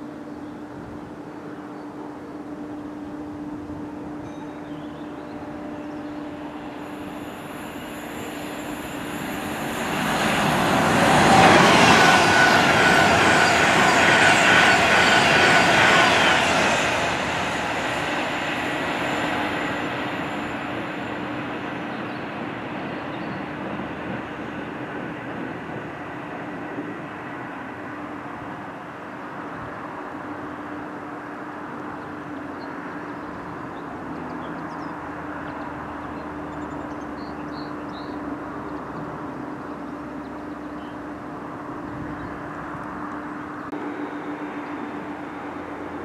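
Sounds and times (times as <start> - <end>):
thin steady whine: 0.0 - 25.0, 42.9 - 46.0
electric train passing at speed: 0.0 - 46.0.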